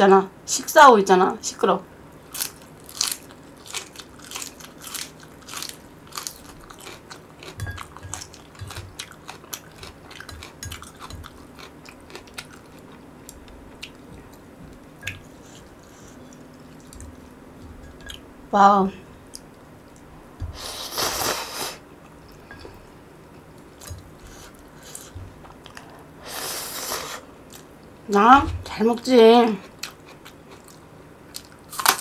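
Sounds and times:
crunchy chewing: 2.2 - 18.2, 29.6 - 32.0.

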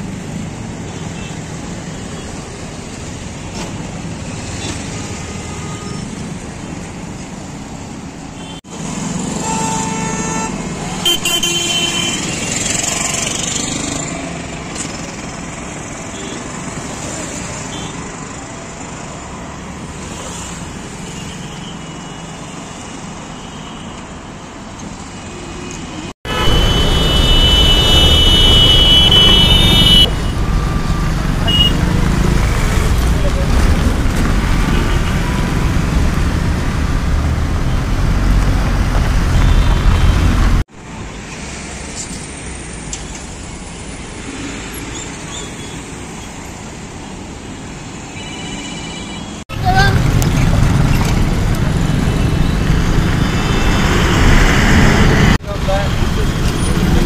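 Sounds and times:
traffic engines running: 0.0 - 57.0
vehicle horns honking: 9.4 - 12.4, 26.3 - 30.4, 31.4 - 31.9.

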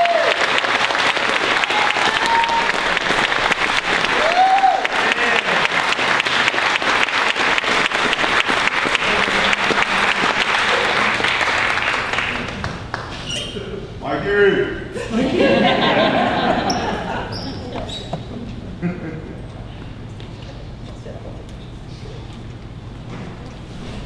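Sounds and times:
audience applauding: 0.0 - 13.4
voices: 13.4 - 22.4.

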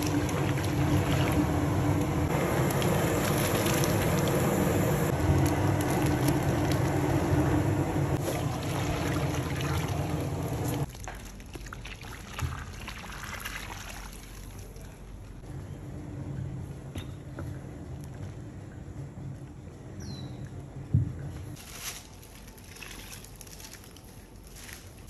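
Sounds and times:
pot of porridge boiling: 0.0 - 14.1.

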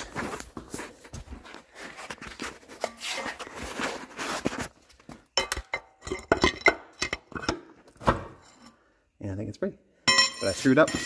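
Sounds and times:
rough scraping and rustling: 0.0 - 5.0
metallic clinks and clanks: 10.0 - 11.0.

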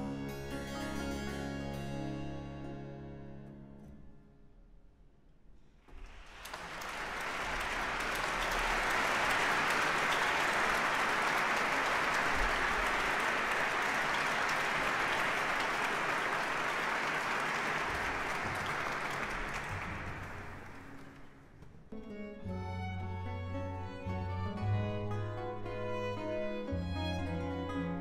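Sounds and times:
audience applauding: 5.9 - 21.5.

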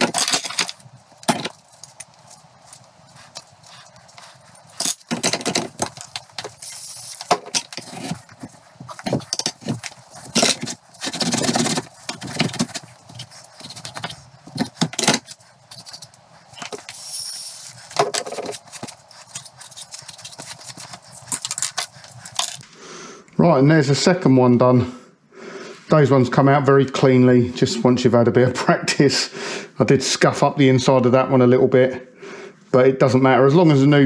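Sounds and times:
metal parts clinking and scraping: 0.0 - 2.0, 8.9 - 22.6.

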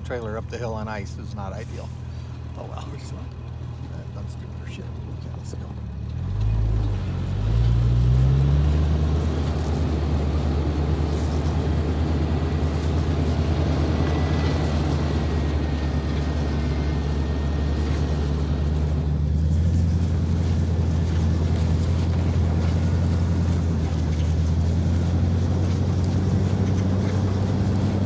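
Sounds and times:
car engine revving under load: 3.3 - 28.0.

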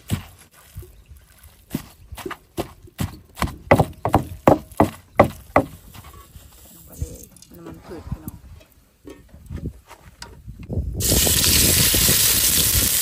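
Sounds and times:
pestle pounding in mortar: 2.6 - 5.8.

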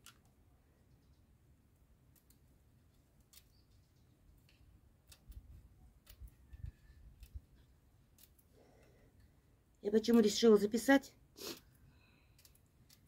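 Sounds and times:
faint scissor snips and clicks: 12.2 - 13.0.

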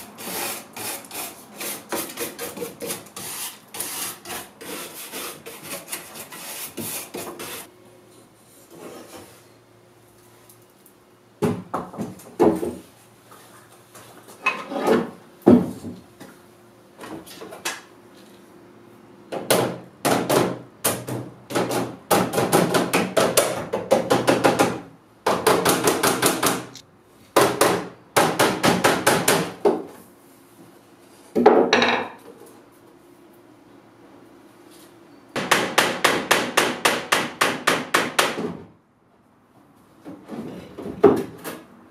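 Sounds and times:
hammer striking wood: 19.4 - 26.8, 27.4 - 29.8, 35.4 - 38.6.

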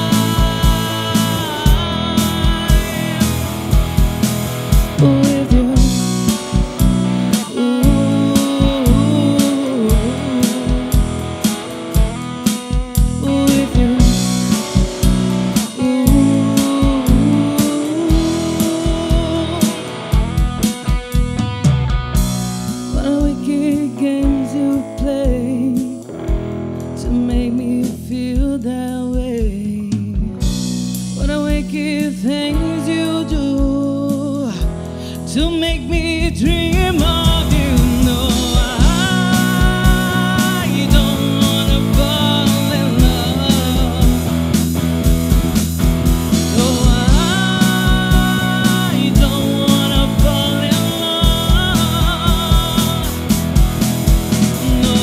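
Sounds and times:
woman singing: 0.0 - 20.2, 22.8 - 30.5, 31.2 - 44.4, 46.4 - 53.4, 54.4 - 55.0
drum kit kick beat: 0.0 - 55.0
electric bass: 0.0 - 55.0
electric guitar: 0.0 - 55.0
live band playing: 0.0 - 55.0.

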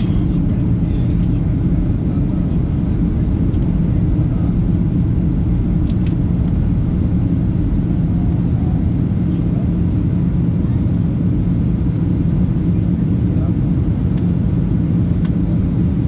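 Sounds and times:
cabin low hum: 0.0 - 12.7
jet engines rumbling: 0.0 - 16.0.

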